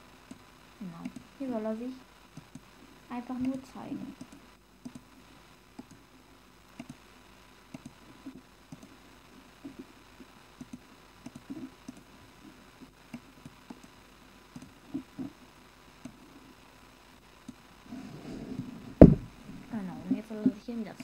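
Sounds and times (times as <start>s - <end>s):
computer mouse clicks: 1.0s - 1.3s, 2.3s - 2.7s, 3.4s - 3.6s, 4.2s - 5.1s, 5.8s - 6.0s, 6.8s - 7.0s, 7.7s - 9.0s, 10.6s - 12.1s, 12.8s - 15.3s, 16.0s - 16.2s.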